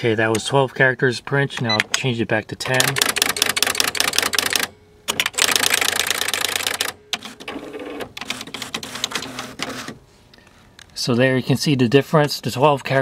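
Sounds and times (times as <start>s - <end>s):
electronic typewriter clicking: 2.6s - 10.0s.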